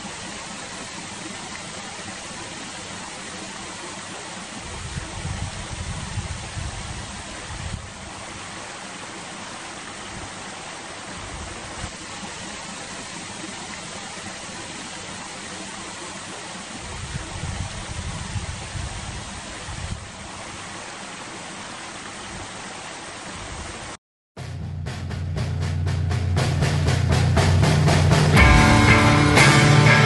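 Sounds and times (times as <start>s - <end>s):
wind buffeting microphone: 4.6s - 8.5s, 16.8s - 20.4s.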